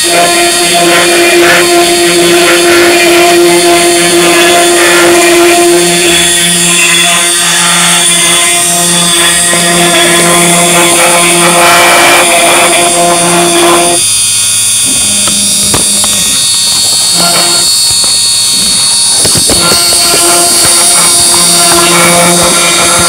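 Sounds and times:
rough wood cutting noise: 0.0 - 23.0
router spindle high whine: 0.0 - 23.0
stepper motors humming: 0.0 - 23.0.

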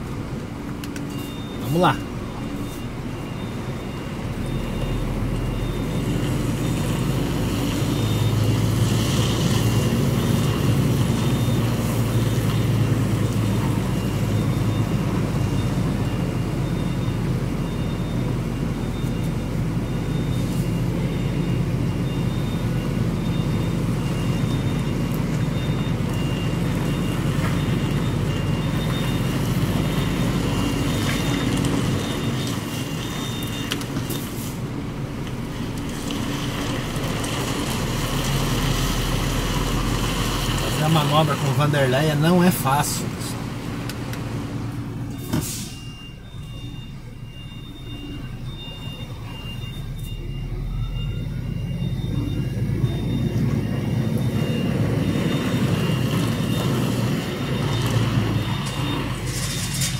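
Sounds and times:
truck diesel engine running: 0.0 - 59.9
faint electronic beeps: 45.1 - 56.7.

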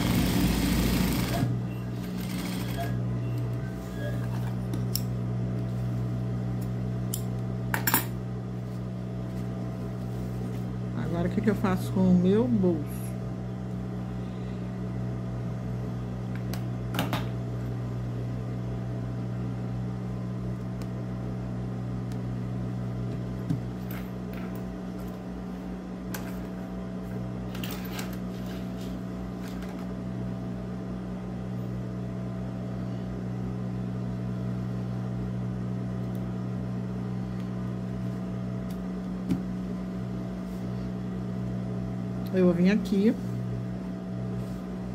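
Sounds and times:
sewing machine motor humming: 0.0 - 3.5.

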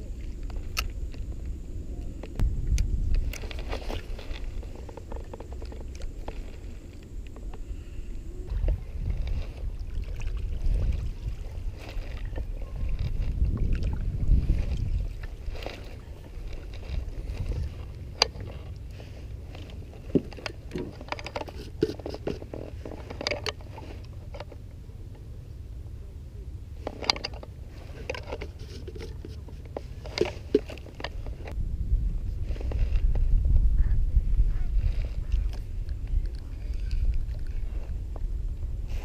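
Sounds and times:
low rumble: 0.0 - 21.0, 22.7 - 39.0
paddle strokes in water: 3.2 - 24.6, 26.7 - 31.6
gear clicking and knocking: 14.6 - 24.6.

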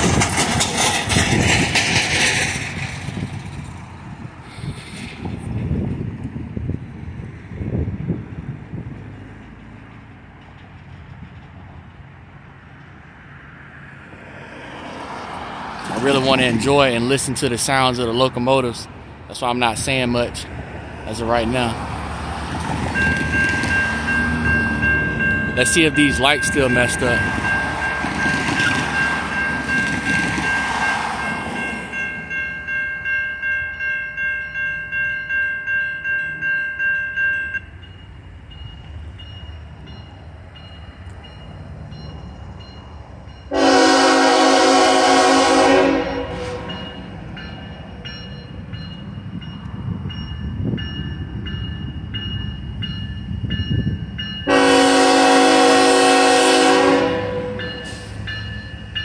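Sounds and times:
railroad crossing bell ringing: 22.9 - 59.0
locomotive air horn blasts: 43.5 - 46.8, 54.5 - 58.1.

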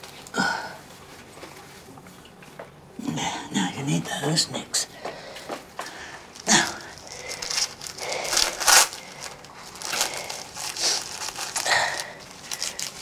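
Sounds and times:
plastic wrapper crinkling: 5.8 - 13.0.

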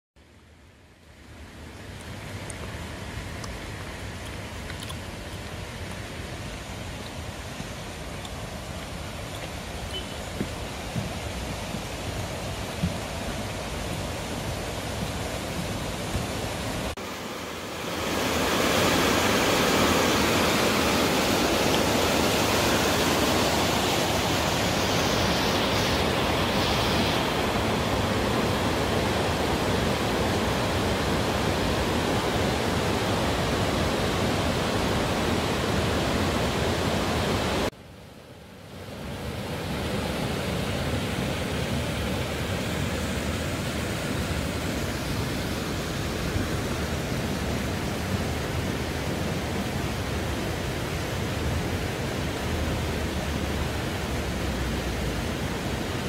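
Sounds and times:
mountain stream rushing: 0.2 - 56.0.

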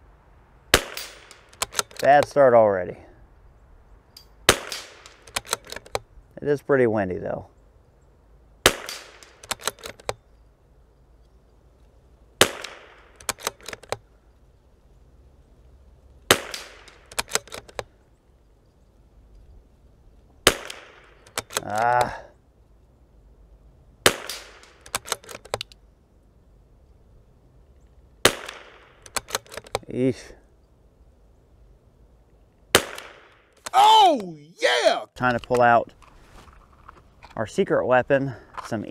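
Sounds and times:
rifle shots: 0.7 - 2.0, 4.5 - 5.8, 8.6 - 10.0, 12.4 - 13.8, 16.3 - 17.6, 20.4 - 21.6, 24.0 - 25.4, 28.2 - 29.7, 32.7 - 33.4
rifle bolt clicks: 0.8 - 2.4, 4.2 - 6.1, 8.8 - 10.2, 12.5 - 14.0, 16.4 - 17.9, 20.6 - 22.1, 24.1 - 25.8, 28.3 - 29.9.

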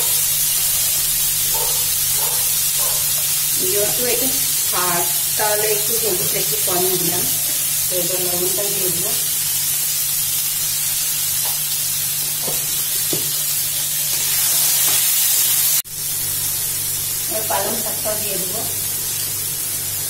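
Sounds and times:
vegetables sizzling in hot oil: 0.0 - 20.0
person talking: 3.6 - 9.2, 17.3 - 18.8.

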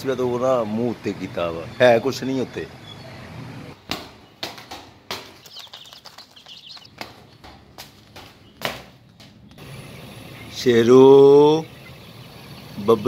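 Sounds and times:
faint high bird chirps: 1.3 - 3.4, 5.4 - 6.9, 9.8 - 13.0
footsteps on concrete floor: 6.3 - 9.6.

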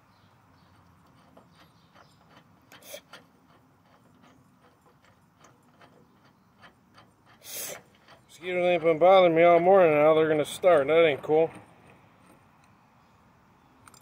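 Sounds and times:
metal fittings clicking and scraping: 0.6 - 12.7
short hiss: 7.4 - 7.9.

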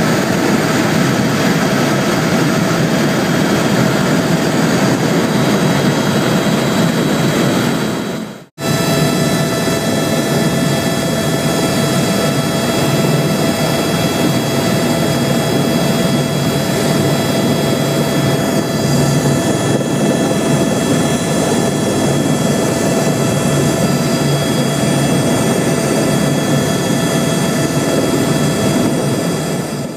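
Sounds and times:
helicopter engine whine: 0.0 - 29.9
rotor and engine rumble: 8.6 - 29.9.

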